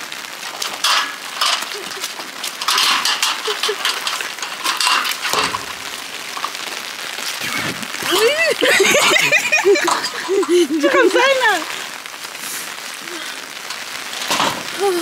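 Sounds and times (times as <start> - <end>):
metal gate and chain rattling: 0.0 - 7.4, 8.1 - 11.8
steady rain: 0.0 - 15.0.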